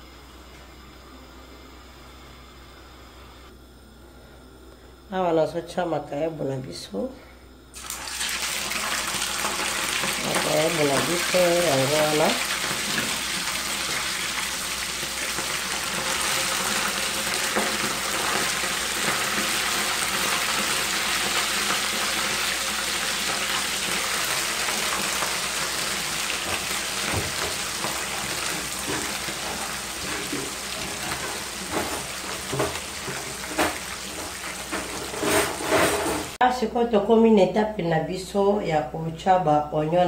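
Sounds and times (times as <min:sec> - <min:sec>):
fish sizzling in frying pan: 0:07.8 - 0:36.4.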